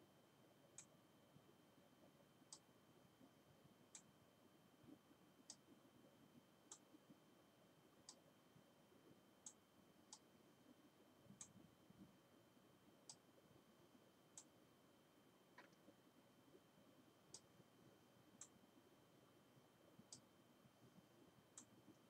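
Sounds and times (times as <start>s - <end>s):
computer mouse clicks: 15.6s - 15.9s.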